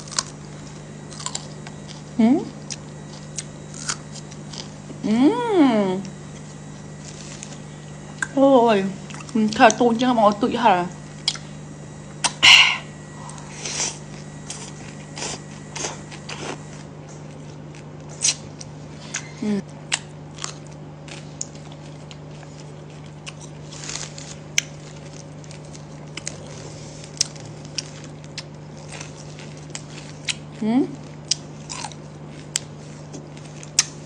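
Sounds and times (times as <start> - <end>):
steady low hum: 0.0 - 34.0
chewing noodles: 19.9 - 34.0.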